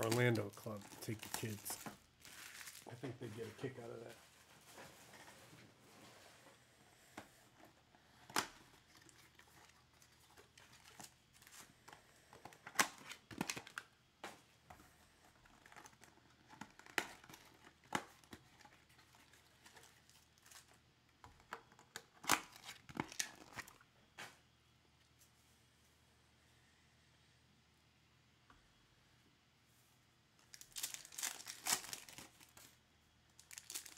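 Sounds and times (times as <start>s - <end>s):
foil packs crinkling: 0.0s - 4.1s, 12.5s - 13.9s, 22.2s - 23.8s, 30.5s - 32.8s, 33.4s - 33.9s.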